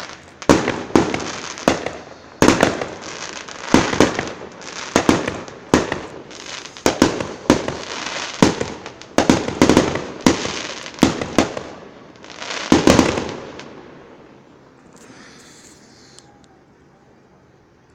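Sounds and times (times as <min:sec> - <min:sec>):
fireworks bursting: 0:00.0 - 0:16.3.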